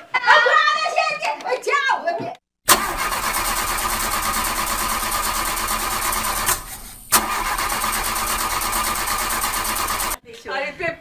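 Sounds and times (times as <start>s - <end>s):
car engine cranking: 2.7s - 10.2s.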